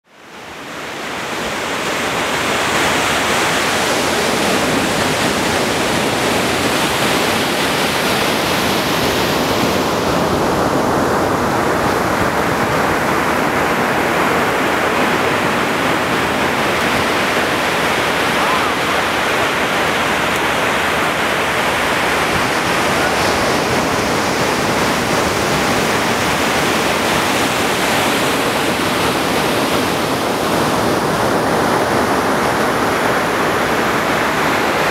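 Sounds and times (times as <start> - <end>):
waves breaking on beach: 0.1 - 34.9.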